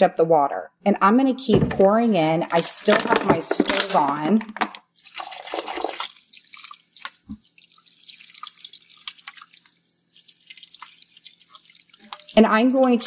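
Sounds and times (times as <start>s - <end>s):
water dripping: 1.8s - 13.0s
water pouring into a pot: 4.8s - 13.0s.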